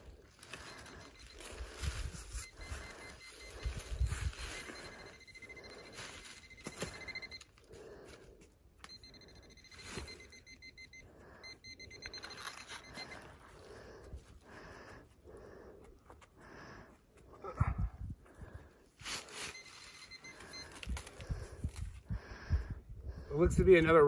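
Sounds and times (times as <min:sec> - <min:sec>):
metal detector pulsed beep: 0:00.5 - 0:07.6, 0:08.8 - 0:13.4, 0:19.3 - 0:21.6.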